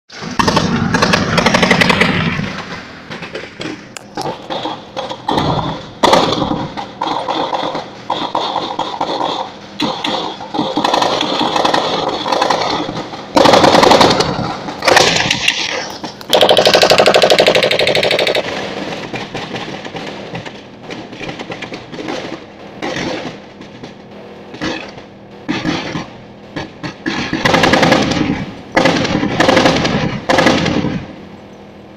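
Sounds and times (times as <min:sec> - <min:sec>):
military vehicle engine and rattle: 0:00.1 - 0:31.9
automatic gunfire: 0:00.2 - 0:02.7, 0:04.2 - 0:20.1, 0:27.1 - 0:31.1.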